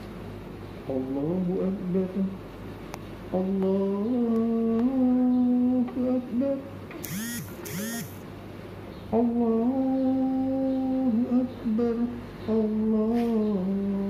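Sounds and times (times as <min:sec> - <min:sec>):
short high-pitched squeals: 0:07.0 - 0:08.2.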